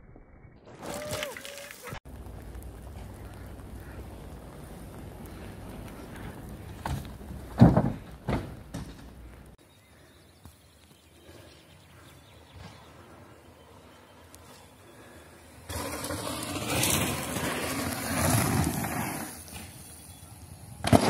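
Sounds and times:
outdoor ambience: 0.0 - 21.0
heavy thumps of mountain bike: 5.4 - 9.6.

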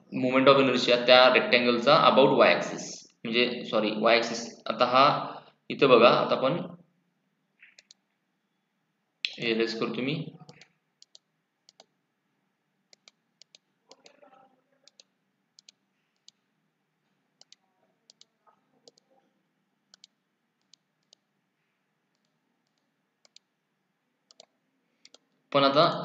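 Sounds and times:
computer mouse clicks: 7.6 - 8.1, 10.5 - 11.9, 12.9 - 14.2, 14.8 - 16.4, 17.4 - 19.1, 19.9 - 21.3, 22.1 - 23.5, 24.3 - 25.4.

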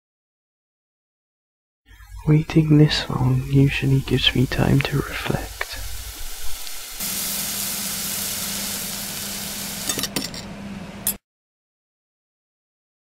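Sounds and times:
food sizzling in a pan: 3.5 - 10.3.

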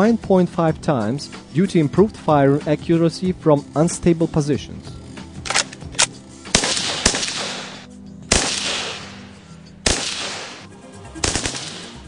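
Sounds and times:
background music: 0.0 - 12.0
rifle shots: 5.4 - 12.0.

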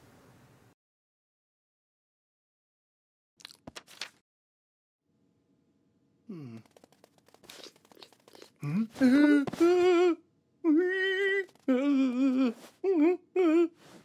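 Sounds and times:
man's frightened cries: 8.6 - 13.8.

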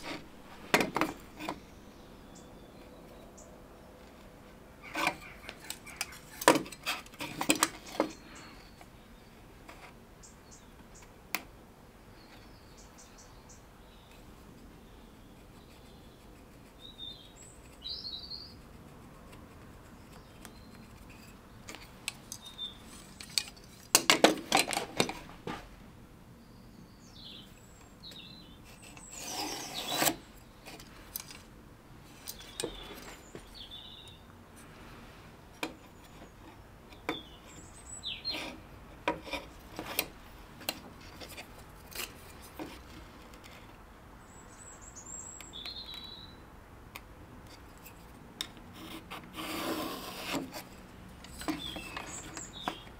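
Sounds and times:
small birds chirping: 1.0 - 11.2, 12.0 - 24.0, 26.3 - 38.7, 40.7 - 46.5, 50.6 - 52.9
pencil scratching: 15.2 - 17.8, 18.5 - 21.4, 28.6 - 30.2, 48.7 - 50.7.

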